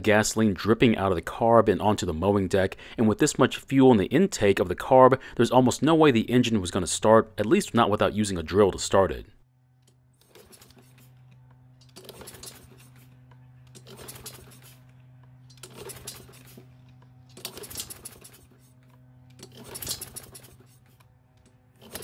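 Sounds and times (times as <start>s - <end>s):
recoil starter rope pulls: 10.2s - 11.2s, 11.8s - 22.0s
engine cranking without catching: 11.8s - 22.0s.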